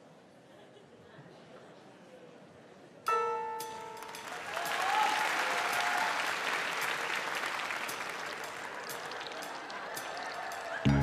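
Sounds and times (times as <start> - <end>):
audience applauding: 4.0 - 10.9.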